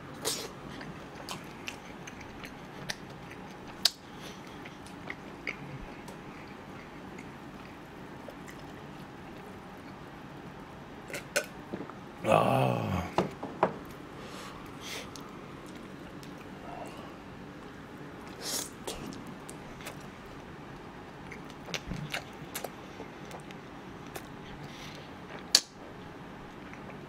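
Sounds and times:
person chewing noodles: 0.2 - 11.4, 14.6 - 17.2, 18.2 - 20.5, 21.1 - 27.0
background hiss: 13.9 - 20.5.

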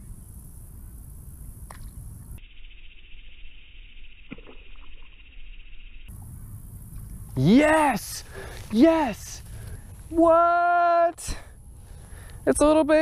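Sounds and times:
insects buzzing: 0.0 - 13.0.

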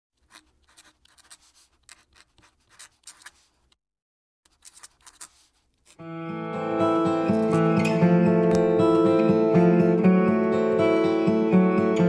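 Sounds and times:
pen nib scratching on paper: 0.2 - 3.8, 4.5 - 6.0.

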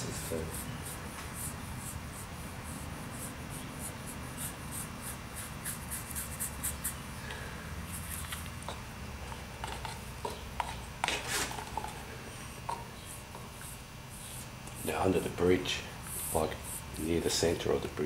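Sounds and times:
paintbrush scratchy strokes: 16.0 - 17.0.

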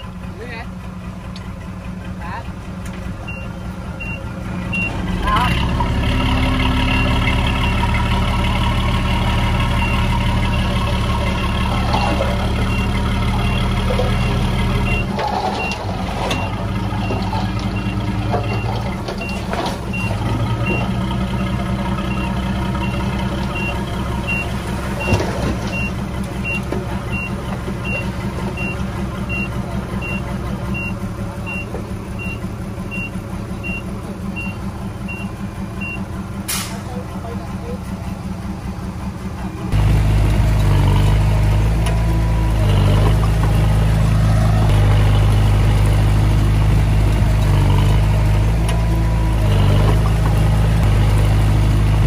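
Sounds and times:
diesel engines working: 0.0 - 52.0
reversing alarm beeping: 3.3 - 5.0, 11.4 - 21.0, 23.6 - 36.0.

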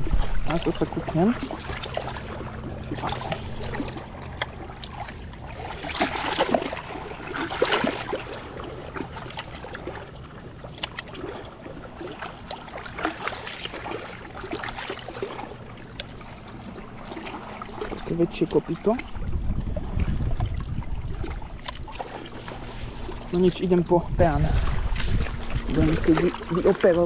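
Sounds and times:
light splashing: 0.0 - 19.7.

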